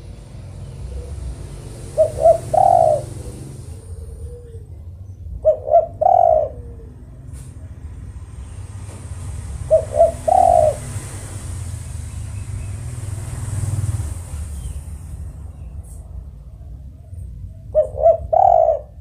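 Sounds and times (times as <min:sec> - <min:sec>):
dove cooing: 0:00.0 - 0:08.0, 0:08.7 - 0:11.9, 0:15.9 - 0:19.0.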